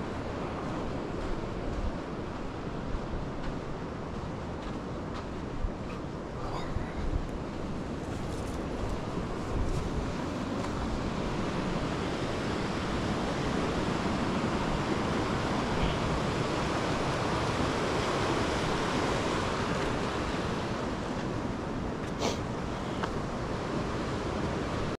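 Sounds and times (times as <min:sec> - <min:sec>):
flowing water rushing: 0:08.7 - 0:24.9.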